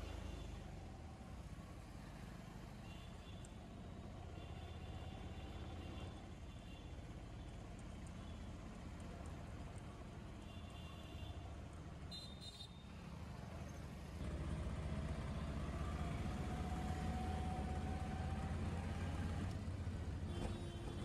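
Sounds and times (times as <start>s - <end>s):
vehicle engine rumble: 13.2s - 21.0s.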